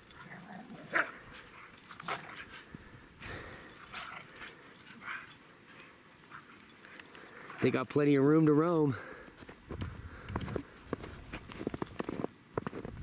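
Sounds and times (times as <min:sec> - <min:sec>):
dogs whining and yipping: 0:00.0 - 0:07.2.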